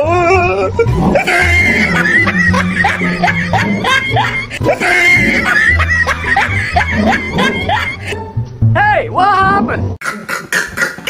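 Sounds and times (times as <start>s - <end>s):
background music with bass line: 0.0s - 9.9s.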